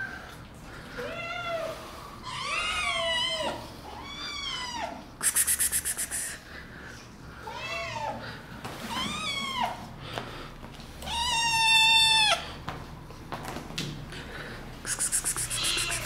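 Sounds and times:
kittens meowing: 0:14.9 - 0:16.0.

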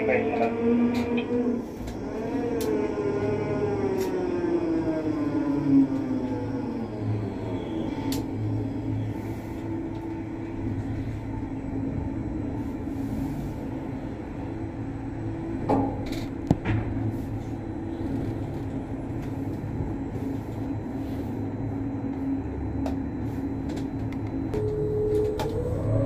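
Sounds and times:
crane machinery humming: 0:00.0 - 0:26.0
low held tones: 0:19.7 - 0:26.0.

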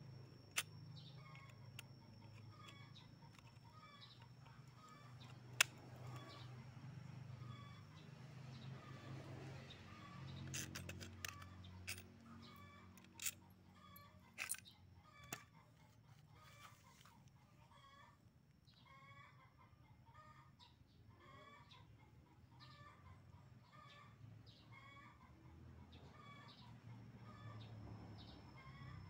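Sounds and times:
small metal parts clicking: 0:00.1 - 0:06.6, 0:10.3 - 0:15.5.

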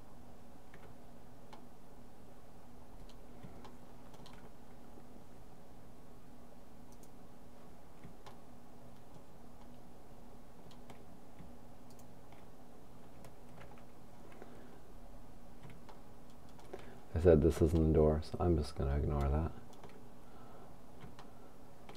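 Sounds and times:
steady low hum: 0:00.0 - 0:21.9
mouse and keyboard clicks: 0:03.0 - 0:04.5, 0:19.7 - 0:20.0.

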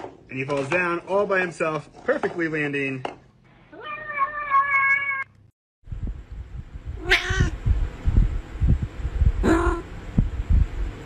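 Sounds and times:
cat meowing: 0:03.7 - 0:05.3, 0:07.0 - 0:07.6
soft low thuds: 0:05.9 - 0:11.0.

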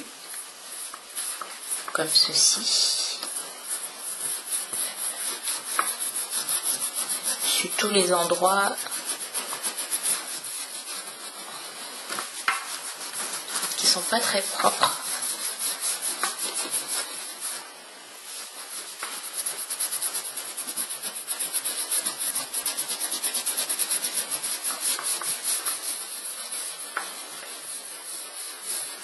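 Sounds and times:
cloth rubbing on leather: 0:00.0 - 0:29.0.

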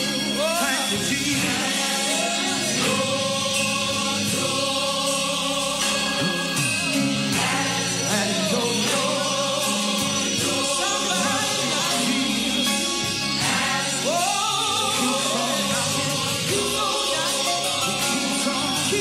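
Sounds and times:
choir singing gospel music: 0:00.0 - 0:19.0
instrumental backing: 0:00.0 - 0:19.0.

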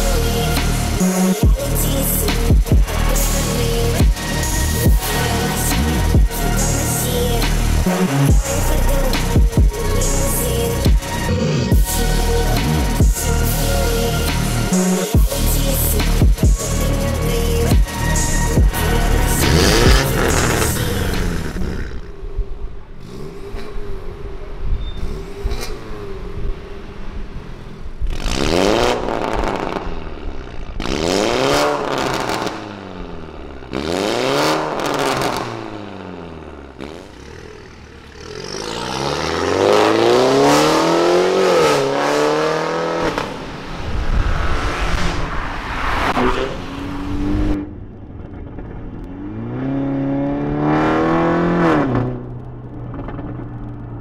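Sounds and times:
car accelerating: 0:00.0 - 0:54.0
car engine revving: 0:00.0 - 0:54.0.

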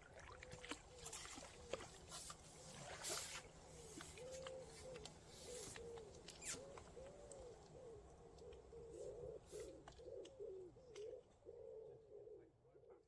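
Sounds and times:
pigeon cooing: 0:03.8 - 0:13.0.

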